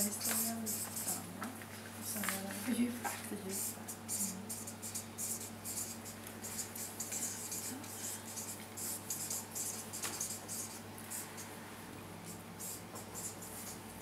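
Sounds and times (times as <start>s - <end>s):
pen scratching on paper: 3.6s - 11.4s, 12.3s - 14.0s.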